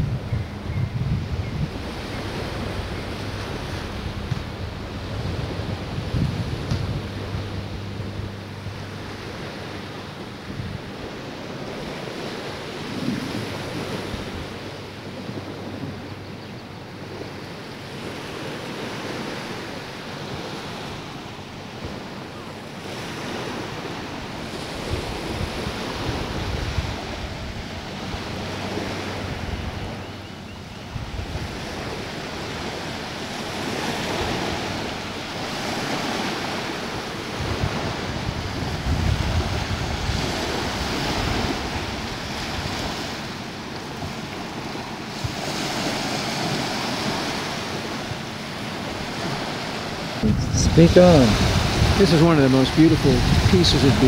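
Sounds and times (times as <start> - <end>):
ocean surf: 0.0 - 54.0
wind buffeting microphone: 0.0 - 54.0.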